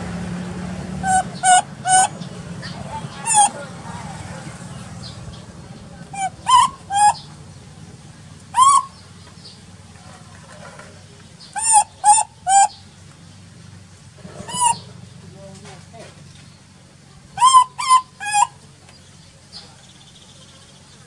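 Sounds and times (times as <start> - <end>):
baby monkey crying: 1.0 - 3.8, 6.1 - 7.2, 8.5 - 9.0, 11.6 - 12.8, 14.5 - 14.9, 17.4 - 18.5.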